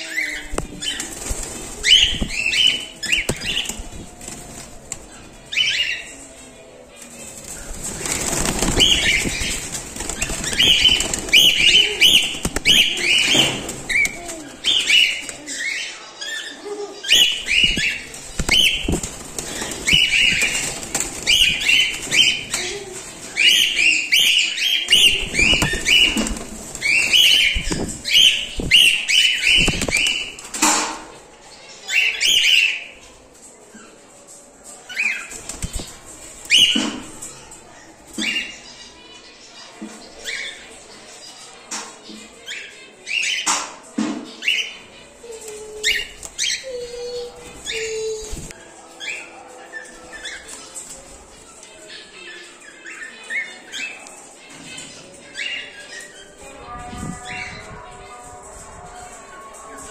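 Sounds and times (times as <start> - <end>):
birds chirping: 0.0 - 34.2, 34.8 - 59.9
birds flapping wings: 0.4 - 5.4, 7.0 - 15.6, 17.1 - 30.8, 35.2 - 37.2.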